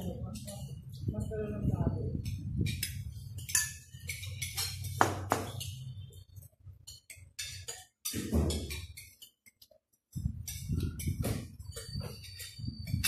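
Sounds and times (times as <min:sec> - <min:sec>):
cutlery clinking on glass bowl: 0:02.6 - 0:06.0, 0:06.8 - 0:09.7.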